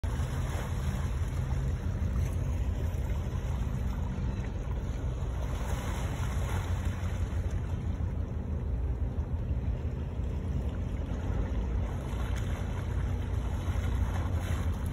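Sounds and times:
low rumble: 0:00.0 - 0:14.9.

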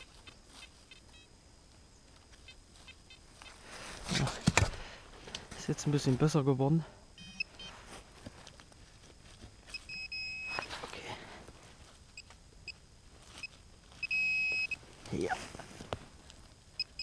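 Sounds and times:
metal detector beeps: 0:00.0 - 0:01.3, 0:07.2 - 0:07.8, 0:09.7 - 0:10.7, 0:13.4 - 0:14.8, 0:16.8 - 0:17.0.

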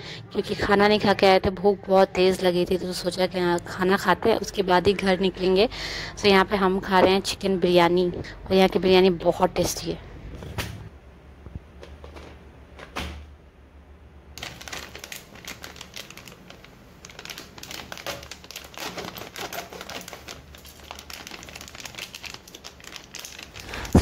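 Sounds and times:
plastic packet crinkling: 0:14.4 - 0:24.0.

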